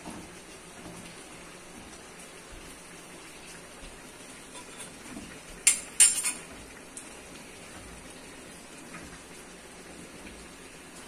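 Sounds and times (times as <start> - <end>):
rain hiss: 0.0 - 11.0
metal clanks on cooking pot: 4.5 - 5.0, 5.6 - 7.1.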